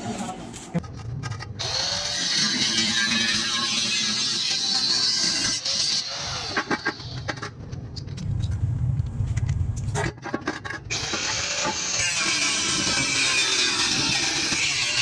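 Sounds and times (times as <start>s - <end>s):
angle grinder cutting steel: 1.6s - 7.2s, 10.9s - 15.0s.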